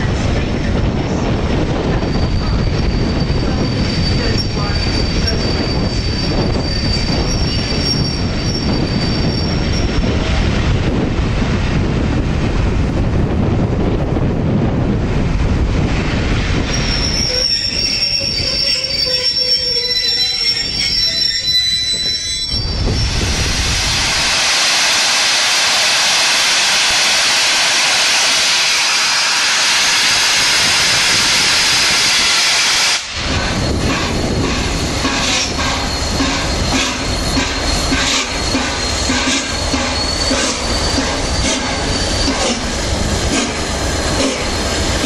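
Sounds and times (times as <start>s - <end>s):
locomotive rumbling and clanking: 0.0s - 23.4s, 33.1s - 45.0s
train wheels squealing on rails: 1.8s - 10.3s, 16.6s - 23.4s, 26.2s - 45.0s
loud steam hiss: 22.6s - 45.0s.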